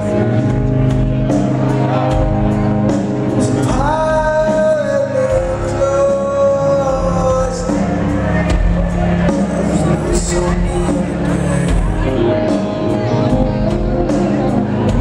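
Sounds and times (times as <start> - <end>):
rock band playing live: 0.0 - 15.0
man singing: 3.4 - 8.3, 9.6 - 12.0.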